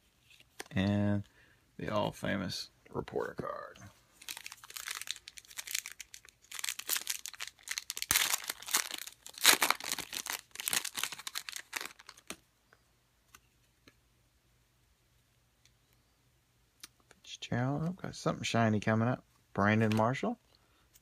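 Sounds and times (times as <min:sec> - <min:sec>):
cards being handled: 0:00.0 - 0:01.2, 0:19.8 - 0:20.2
plastic wrapper crinkling: 0:04.2 - 0:12.4.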